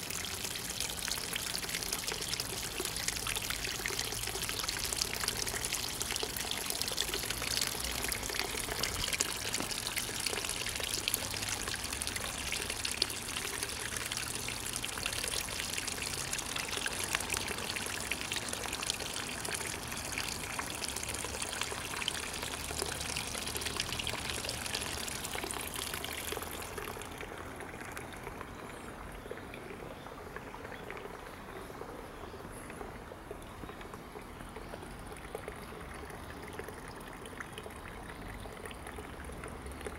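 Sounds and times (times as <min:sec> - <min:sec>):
water trickling into a pond: 0:00.0 - 0:39.9.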